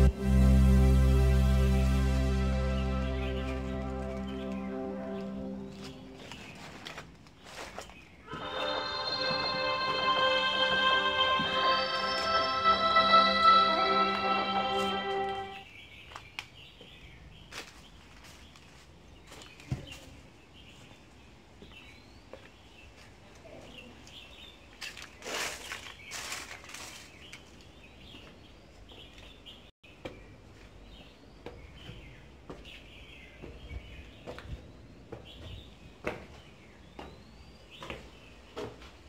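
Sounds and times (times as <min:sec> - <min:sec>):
crunching rustle: 0:05.7 - 0:08.2, 0:24.7 - 0:27.7.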